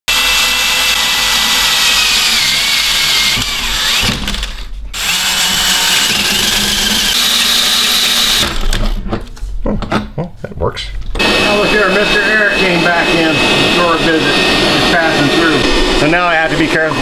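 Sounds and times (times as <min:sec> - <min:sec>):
drill hole saw cutting metal: 0:00.1 - 0:08.9, 0:11.2 - 0:17.0.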